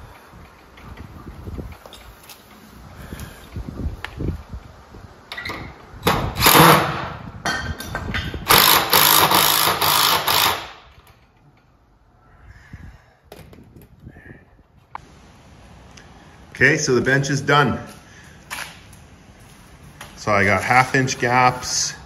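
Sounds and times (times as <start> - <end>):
cordless drill driving screws into wood: 6.0 - 7.2, 8.5 - 10.8.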